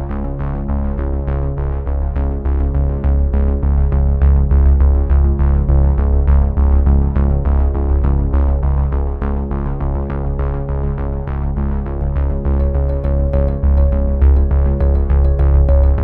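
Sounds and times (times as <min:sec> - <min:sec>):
electronic synthesizer music: 0:12.6 - 0:16.0.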